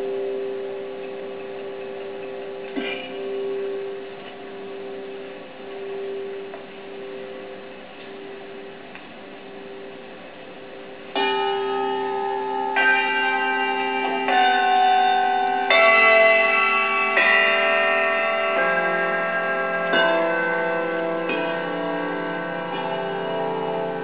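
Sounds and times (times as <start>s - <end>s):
handbell choir ringing chords: 9.5s - 24.0s.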